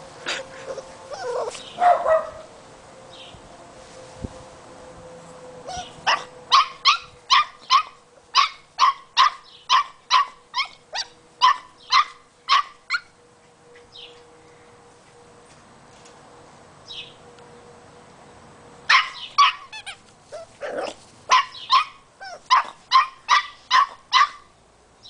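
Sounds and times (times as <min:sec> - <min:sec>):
squeaky toy squeaking: 0:19.4 - 0:20.5.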